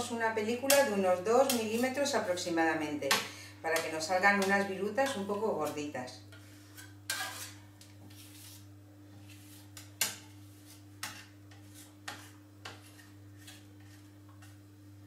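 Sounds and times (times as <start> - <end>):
metal spatula scraping countertop: 3.8 - 14.6.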